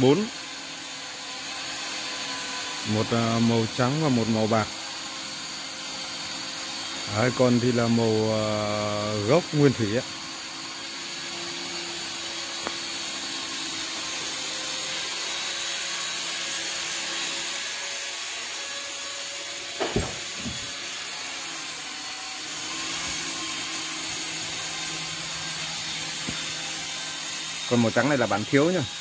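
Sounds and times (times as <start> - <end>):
machine whirring: 2.0 - 29.0
short knocks: 19.8 - 20.8.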